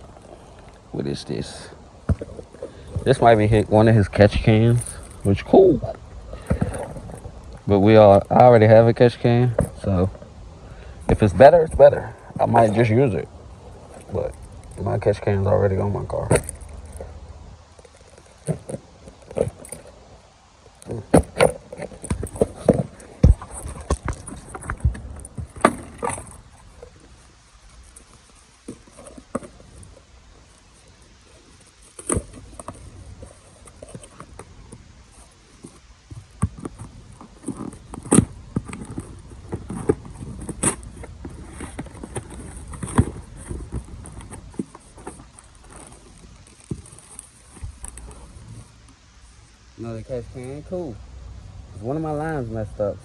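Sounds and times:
rummaging through cardboard boxes: 0:35.1 - 0:48.7.

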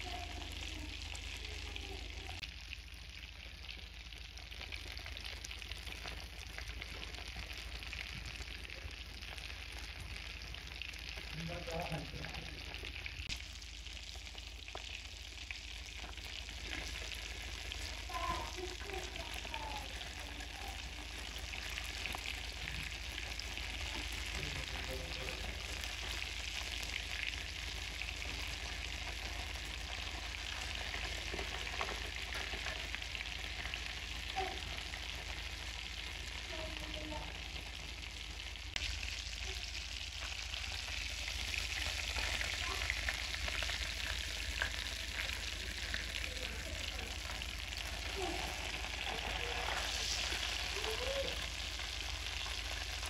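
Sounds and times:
patties deep-frying in oil: 0:00.0 - 0:53.0.

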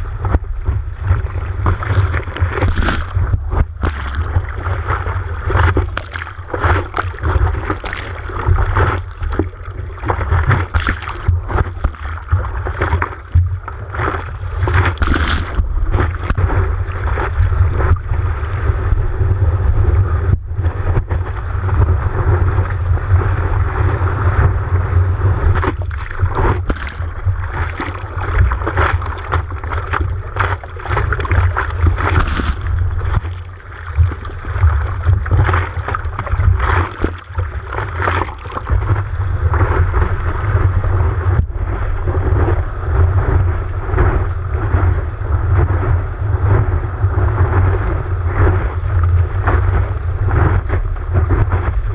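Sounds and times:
water splashing: 0:00.0 - 0:19.0, 0:25.4 - 0:44.7
water rushing and churning: 0:00.0 - 0:51.9.

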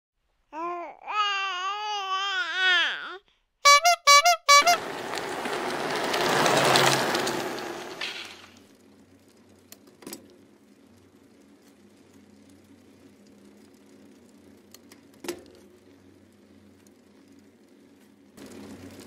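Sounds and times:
short bright horn toots: 0:03.6 - 0:05.0.

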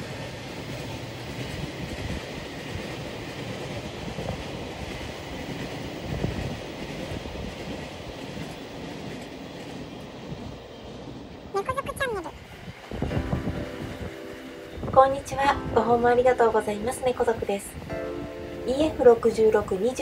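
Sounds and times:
freight train wheels rumbling: 0:00.0 - 0:20.0.

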